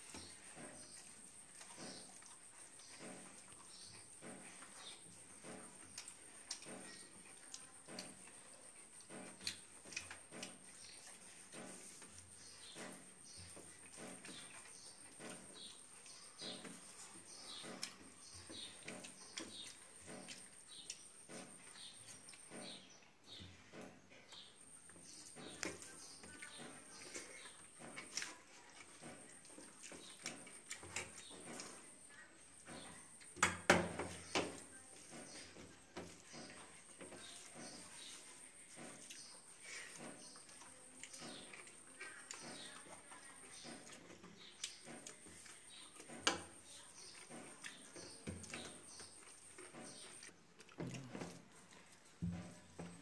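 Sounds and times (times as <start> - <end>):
chewing: 0.0 - 53.0
chewing and lip smacks: 25.6 - 31.8, 46.9 - 52.2.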